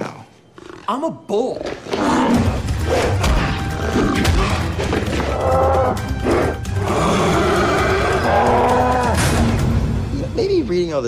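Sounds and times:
dramatic music with percussive hits: 2.2s - 10.7s.

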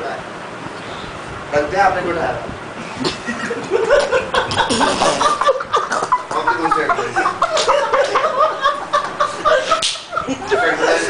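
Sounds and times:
people laughing: 2.8s - 11.0s.

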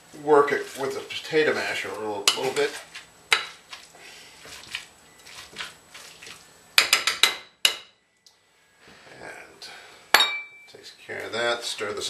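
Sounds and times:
potato masher mashing avocado: 0.4s - 7.4s.

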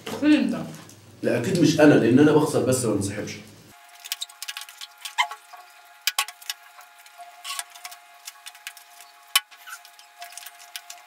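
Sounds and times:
forks scraping foil trays: 6.1s - 11.0s.

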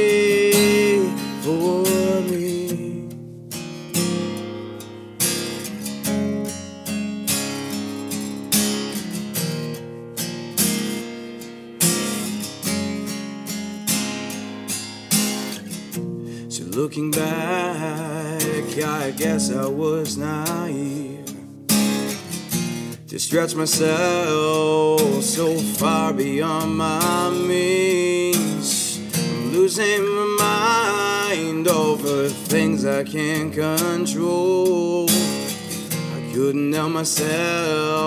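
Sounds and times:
person singing wordlessly: 0.0s - 3.2s, 16.5s - 21.5s, 23.0s - 38.0s
acoustic guitar strumming and picking: 0.0s - 38.0s.

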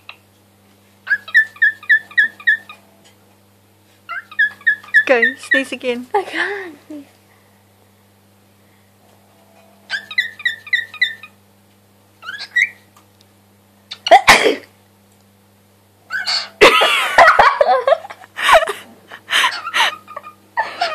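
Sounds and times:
cockatiel chirping: 1.0s - 2.8s, 4.1s - 5.7s, 9.9s - 11.4s, 12.2s - 12.8s, 16.1s - 16.5s.

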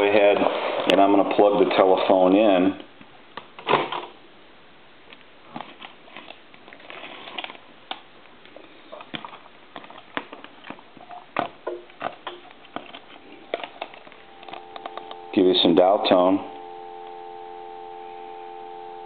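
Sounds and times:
small clicks and rustles: 5.2s - 15.2s.

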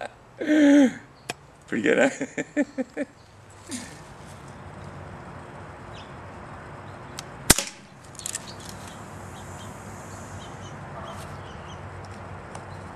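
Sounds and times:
bb gun shot crack: 7.5s - 7.9s.

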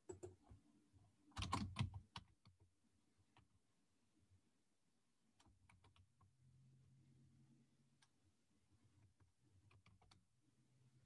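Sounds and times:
faint keyboard typing: 0.0s - 0.7s, 1.3s - 2.7s, 5.4s - 6.4s, 9.0s - 10.3s.

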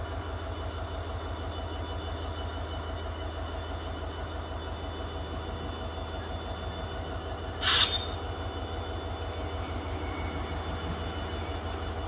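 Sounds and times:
distant locomotive rumble: 0.0s - 12.0s
air brake hiss: 7.6s - 8.2s.

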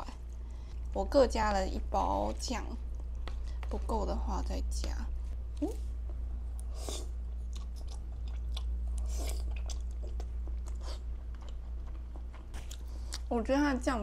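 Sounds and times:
steady low hum: 0.0s - 14.0s
person chewing noodles: 6.5s - 13.3s.

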